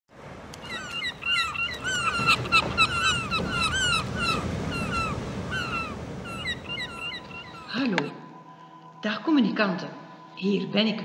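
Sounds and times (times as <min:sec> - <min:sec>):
overlapping animal chirping calls: 0:00.6 - 0:08.1.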